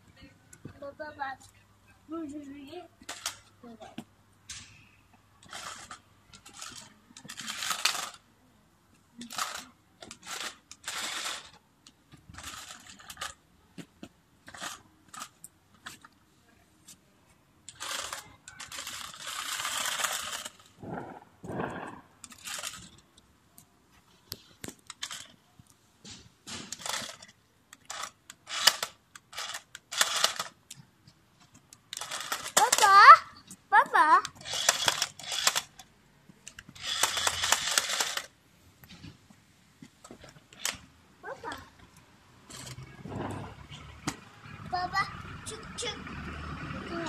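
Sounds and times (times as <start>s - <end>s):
toy car electric motors whirring: 3.0s - 3.5s, 5.4s - 8.2s, 9.2s - 11.6s, 12.2s - 13.4s, 14.4s - 16.1s, 17.7s - 23.0s, 24.9s - 25.4s, 26.5s - 30.7s, 31.7s - 38.4s, 40.5s - 47.0s
plastic wheels scraping on paving: 5.4s - 8.2s, 9.2s - 11.6s, 12.2s - 13.4s, 17.7s - 23.0s, 32.0s - 33.2s, 42.4s - 46.0s.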